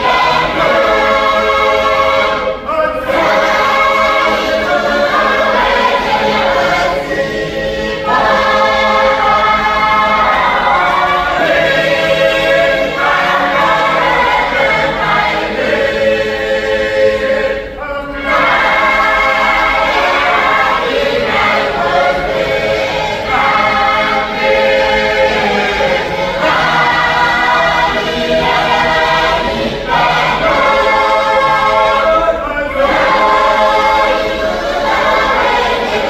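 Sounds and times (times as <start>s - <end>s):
women's choir singing a hymn: 0.0s - 36.0s.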